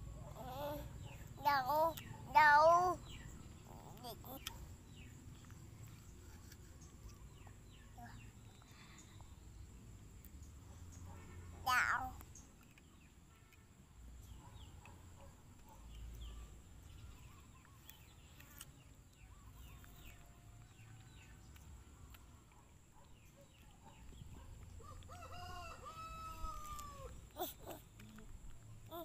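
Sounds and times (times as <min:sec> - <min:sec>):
rooster crowing: 0:24.8 - 0:27.1.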